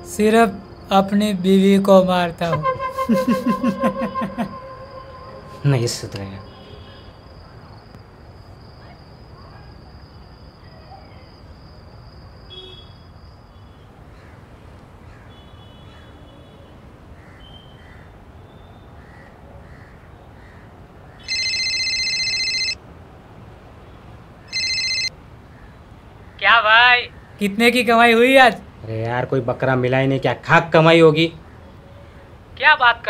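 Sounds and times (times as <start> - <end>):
outdoor ambience: 0.0 - 21.3
mobile phone ringtone: 2.6 - 5.7, 21.3 - 22.8, 24.5 - 25.1.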